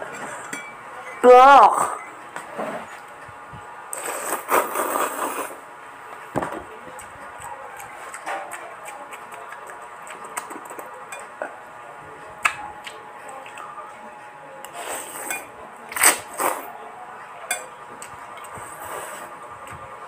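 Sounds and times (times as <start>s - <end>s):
noodles slurped: 3.9s - 5.6s.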